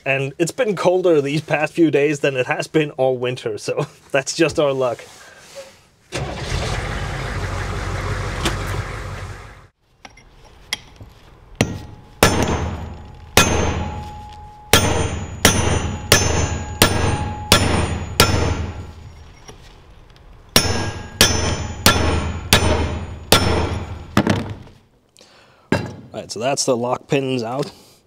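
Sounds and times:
hammer striking steel punch: 11.6s - 19.0s, 20.6s - 24.5s.

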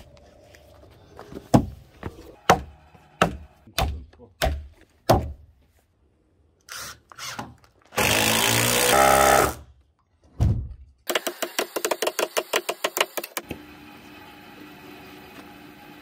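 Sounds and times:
power tool whirring: 6.7s - 9.6s.

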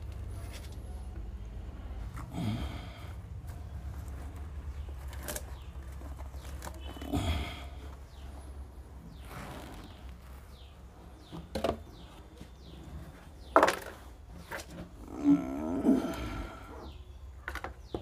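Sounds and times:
plastic pots knocking: 11.2s - 12.7s, 13.4s - 15.0s, 17.3s - 18.0s.

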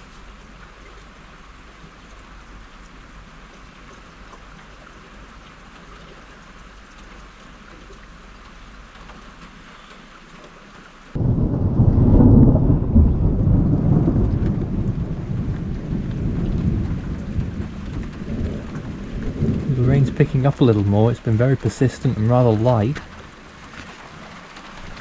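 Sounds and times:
light rain: 0.0s - 25.0s
thunder clap and rumble: 11.1s - 23.6s.

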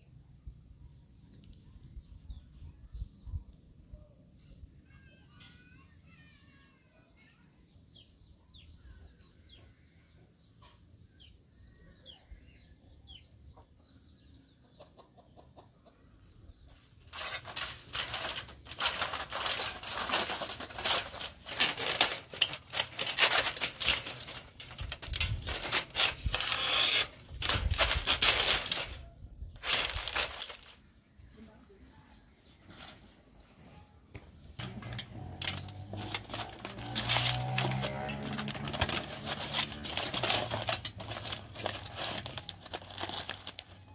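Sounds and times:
faint bird chirps: 0.1s - 17.0s
aluminium foil crinkling: 16.7s - 30.8s, 34.6s - 43.9s.

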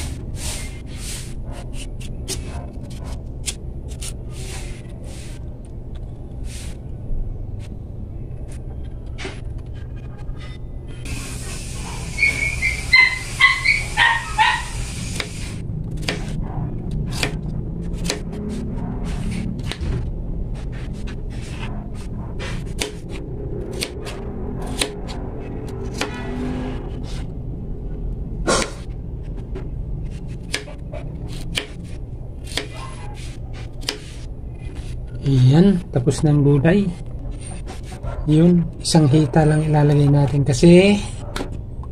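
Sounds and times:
steady low hum: 0.0s - 41.9s
dog whimpering and yipping: 11.8s - 14.7s, 32.7s - 33.2s
knife chopping on plastic board: 17.1s - 17.4s, 22.5s - 23.1s, 30.4s - 31.8s.

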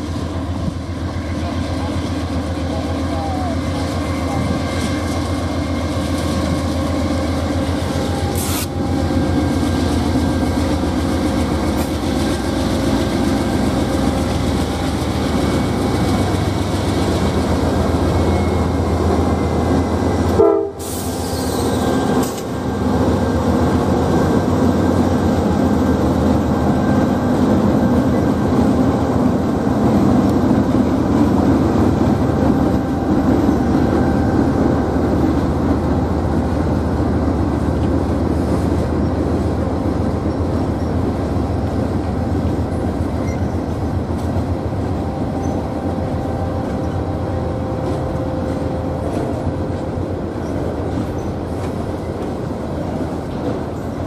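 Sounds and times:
diesel locomotive engines running: 0.0s - 54.0s
train wheels rolling on rails: 0.0s - 54.0s.

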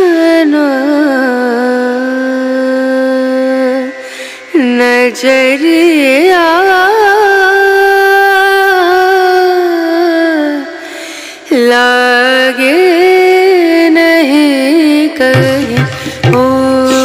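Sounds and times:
person singing ornamented song: 11.5s - 17.0s.

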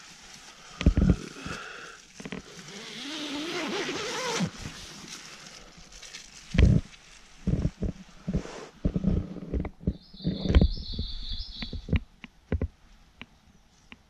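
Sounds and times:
zipper pulled open: 2.4s - 4.9s.

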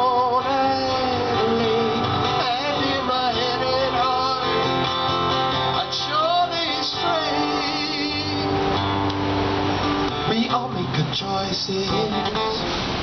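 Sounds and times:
person singing: 0.0s - 5.0s, 5.7s - 8.6s
acoustic guitar strumming: 0.0s - 13.0s.

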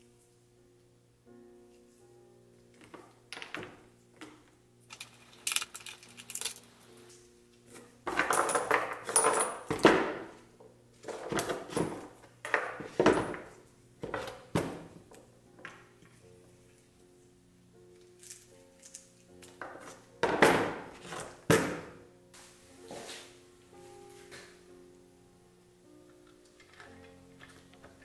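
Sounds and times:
faint background music: 0.0s - 28.0s
bolts clicking and rattling on wood: 2.8s - 6.7s, 8.1s - 10.3s, 11.2s - 14.5s, 26.1s - 28.0s.

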